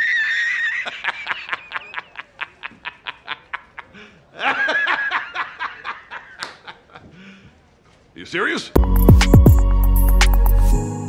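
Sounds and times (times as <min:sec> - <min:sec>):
man laughing squealing: 0:00.0 - 0:07.1.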